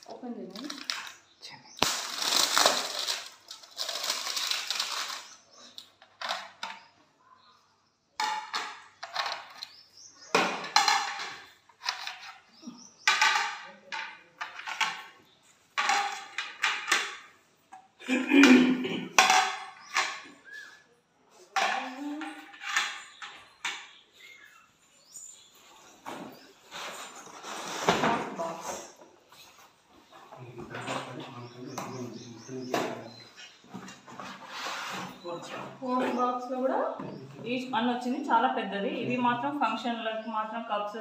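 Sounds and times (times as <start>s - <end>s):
plates and bowls clattering: 10.3s - 15.2s, 15.8s - 20.2s.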